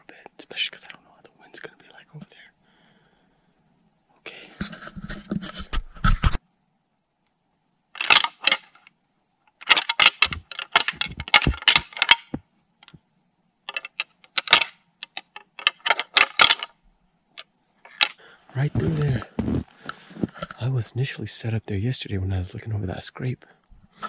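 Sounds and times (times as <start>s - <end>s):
crunching footsteps in snow: 18.5s - 20.4s.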